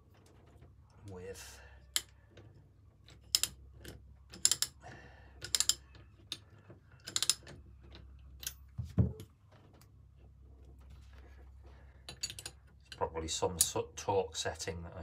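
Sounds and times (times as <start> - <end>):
ratchet wrench clicking: 3.3 - 4.8, 5.4 - 5.8, 7.0 - 7.5.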